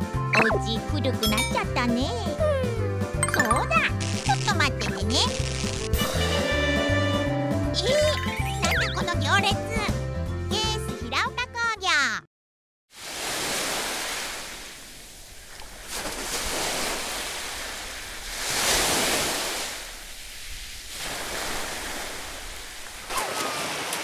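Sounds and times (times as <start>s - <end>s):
small waves washing onto beach: 12.9s - 24.0s
splashing through shallow water: 13.0s - 24.0s.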